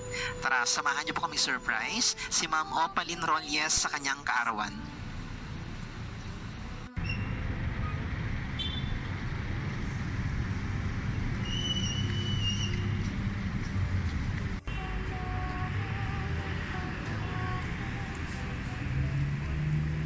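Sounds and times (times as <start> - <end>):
passing vehicles rumble: 0.0 - 20.0
short high squeal: 7.0 - 8.0.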